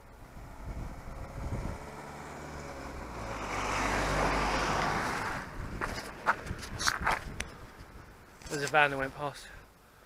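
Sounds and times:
van driving past: 0.0 - 6.4.

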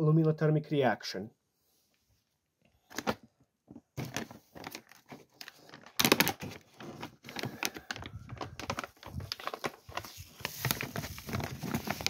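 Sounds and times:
aluminium foil crinkling: 4.0 - 12.0.

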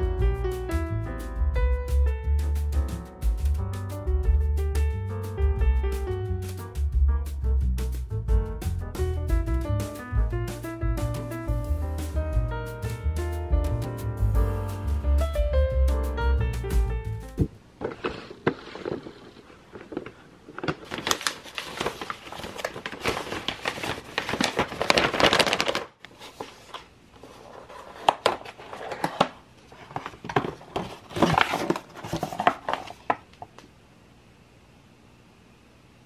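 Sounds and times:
box rustling and tapping: 17.8 - 21.9, 27.8 - 33.3
paper envelope tearing: 18.0 - 29.4, 30.4 - 33.2.

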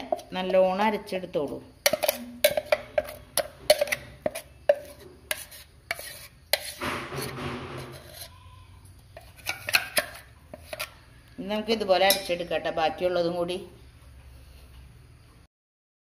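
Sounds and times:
batter scraped from steel jar: 1.8 - 8.6, 9.2 - 11.0
sharp metal knocks: 6.6 - 8.0.

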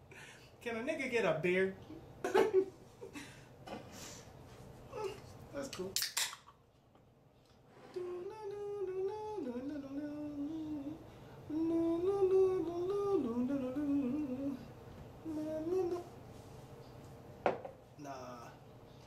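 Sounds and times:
man humming: 7.8 - 16.1.

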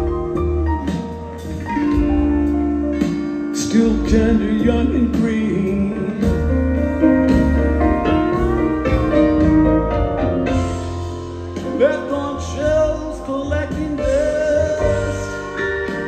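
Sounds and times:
live band playing: 0.0 - 16.0.

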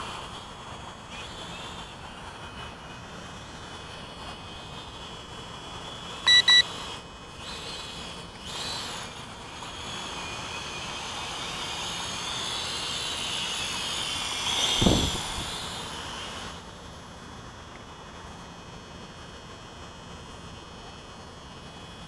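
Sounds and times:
quadcopter motors whining: 0.0 - 19.3, 20.1 - 22.0
short electronic beeps: 6.3 - 6.7.

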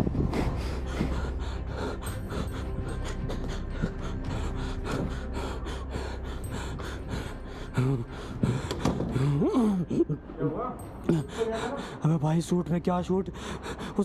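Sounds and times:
man panting hard: 0.0 - 9.9.

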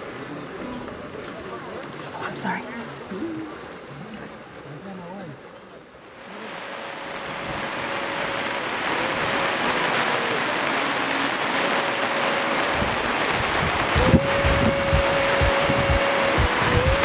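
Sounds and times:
heavy rain hissing: 6.0 - 17.0
background music with drum beat: 14.0 - 17.0.

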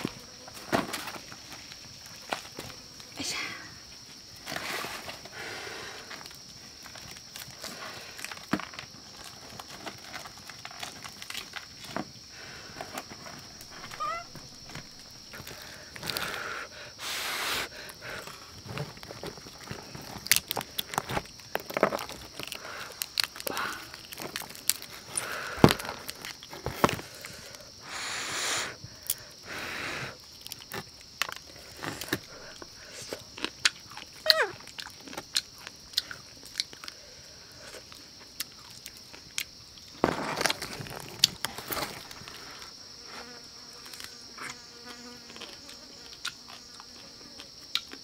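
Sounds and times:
dried leaf rustling and crinkling: 6.1 - 16.4, 18.0 - 27.8, 38.0 - 42.8
breath blowing on food: 13.6 - 18.4, 27.0 - 30.2
sharp crackles: 19.0 - 27.2.

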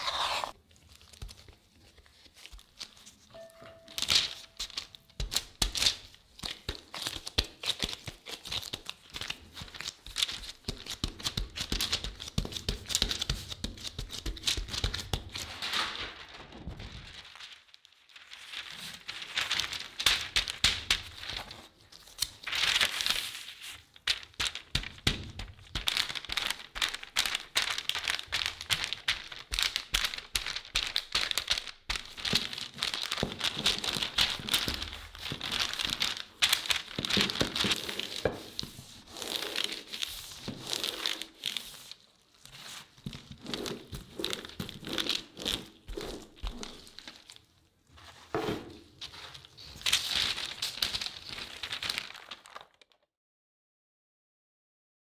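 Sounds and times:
rolling pin rolling dough: 0.0 - 0.6, 37.0 - 41.9
parchment paper crinkling: 0.0 - 53.0.

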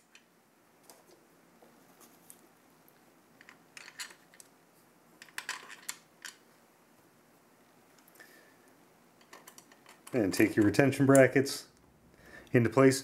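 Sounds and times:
faint plastic clicks and clacks: 7.9 - 12.6.

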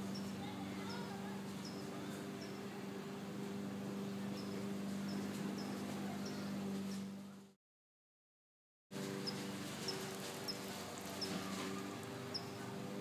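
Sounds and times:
steady low hum: 0.0 - 7.6.

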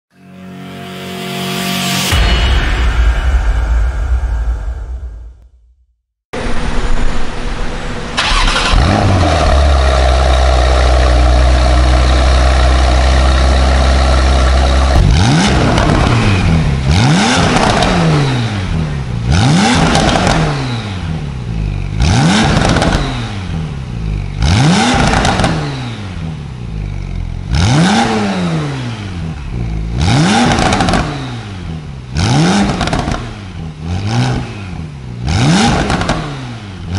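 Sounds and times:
car engine revving: 6.4 - 36.9
sports car engine idling: 6.5 - 17.8, 22.8 - 27.6.

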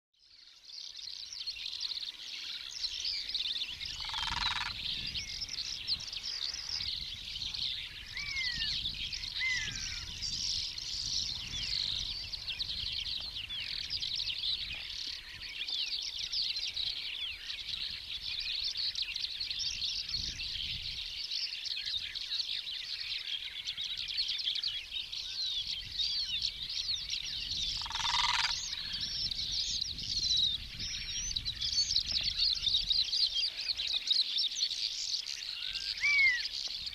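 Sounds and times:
small birds chirping: 0.2 - 36.9
loud bird calls: 0.8 - 36.9
low wind rumble: 3.6 - 15.6, 25.6 - 33.6.

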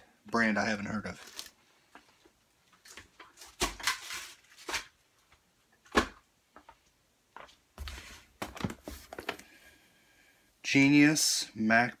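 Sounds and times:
packaging rustling and knocking: 7.8 - 9.4.

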